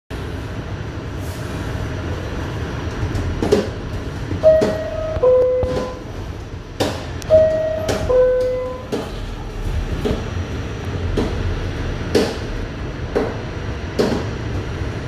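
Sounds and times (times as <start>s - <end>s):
subway train rumbling: 0.1s - 15.0s
two-note falling door chime: 7.3s - 8.9s.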